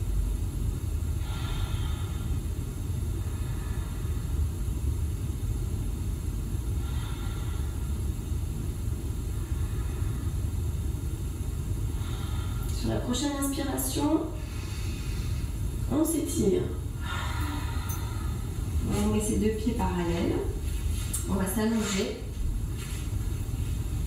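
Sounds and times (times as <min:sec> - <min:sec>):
low background rumble: 0:00.0 - 0:24.0
faint breath: 0:01.2 - 0:04.6, 0:06.7 - 0:08.2, 0:09.2 - 0:11.0, 0:11.9 - 0:12.8, 0:14.4 - 0:15.7, 0:17.0 - 0:18.8.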